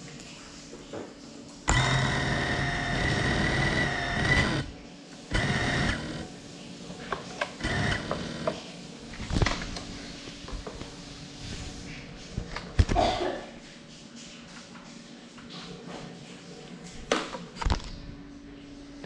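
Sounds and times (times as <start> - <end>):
drone motors whining: 1.7 - 6.4, 7.6 - 8.6.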